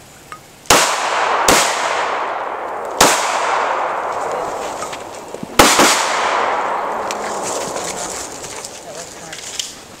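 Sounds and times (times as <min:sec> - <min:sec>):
pistol shots with echo: 0:00.7 - 0:07.7.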